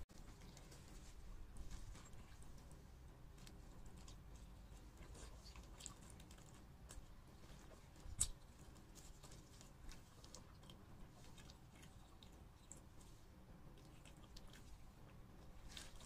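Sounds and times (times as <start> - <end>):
plastic gloves rustling: 0.0 - 13.5, 14.3 - 16.0
chewing food: 0.1 - 16.0.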